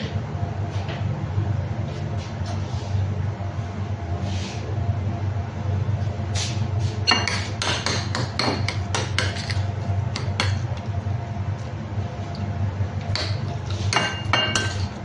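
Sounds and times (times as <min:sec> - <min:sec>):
metal spoon clinking on glass bowl: 0:14.0 - 0:14.9.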